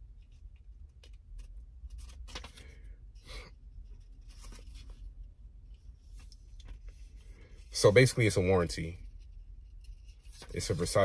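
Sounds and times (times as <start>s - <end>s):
paper rustling and crinkling: 0.2s - 2.8s, 3.9s - 5.2s.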